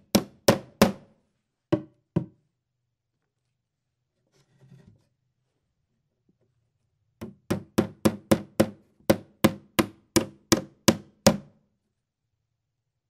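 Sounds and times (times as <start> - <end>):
hammer striking nail into wood: 0.0 - 1.1, 7.2 - 11.5.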